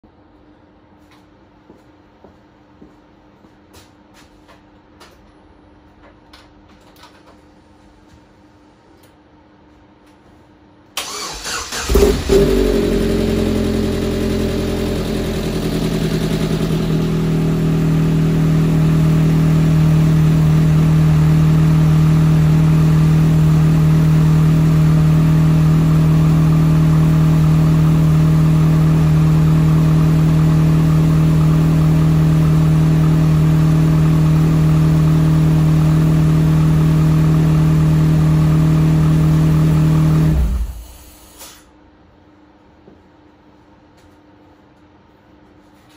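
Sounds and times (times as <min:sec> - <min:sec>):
four-cylinder engine running: 0:11.0 - 0:41.1.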